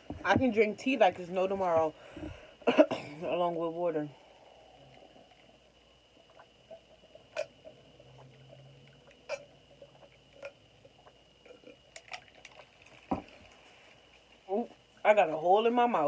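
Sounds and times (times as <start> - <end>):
person gulping water: 4.6 - 13.6.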